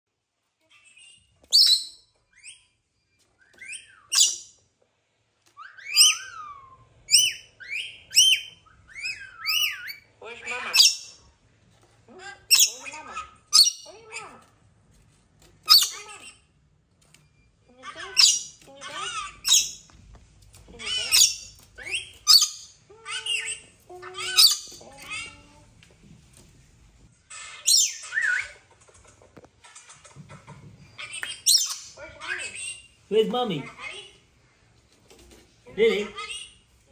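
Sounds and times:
parrot shrill whistled calls: 5.6 - 10.1
parrot screeching: 5.6 - 11.2, 12.1 - 14.5, 15.6 - 16.5, 17.8 - 19.8, 20.7 - 25.5, 27.2 - 28.6, 31.0 - 33.0.

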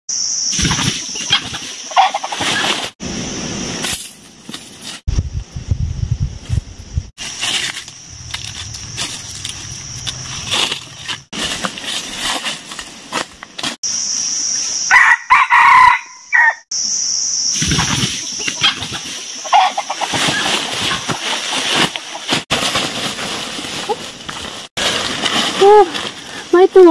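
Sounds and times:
rustling in dry leaves: 7.2 - 13.9, 17.6 - 26.9
rooster crowing: 14.9 - 16.6.

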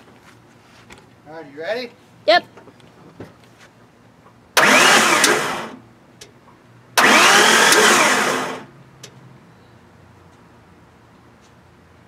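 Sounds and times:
engine starter cranking: 4.6 - 5.8, 7.0 - 8.7.

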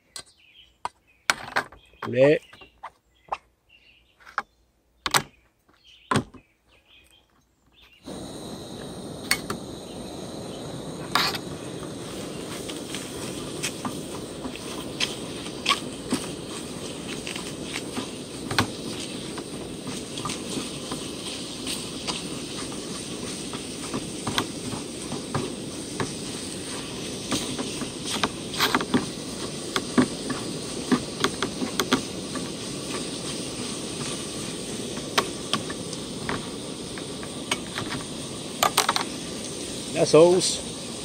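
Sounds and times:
gas burner hissing: 8.0 - 41.0
meat sizzling in a frying pan: 8.1 - 41.0
utensil scraping a pan: 11.1 - 11.5.

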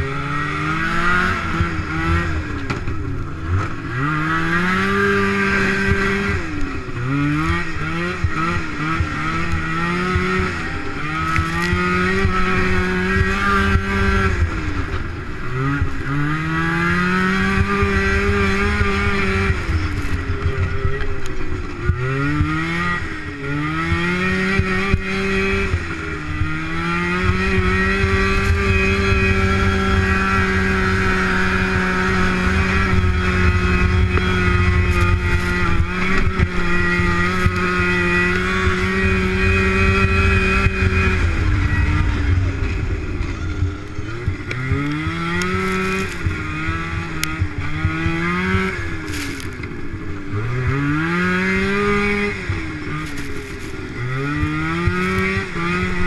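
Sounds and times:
snowmobile engine revving: 0.0 - 56.0
low rumble: 26.3 - 47.9.

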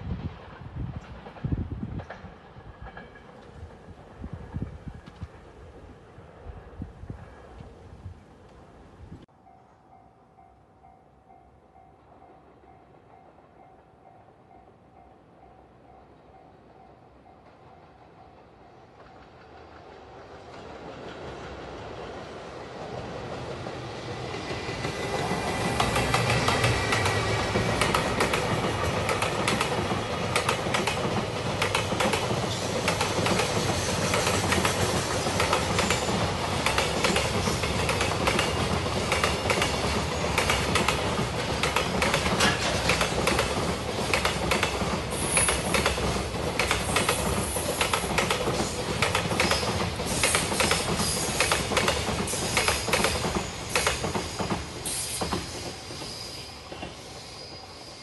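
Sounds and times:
train wheels clattering over rails: 18.9 - 57.2
high-pitched wheel squeals: 52.5 - 58.0.

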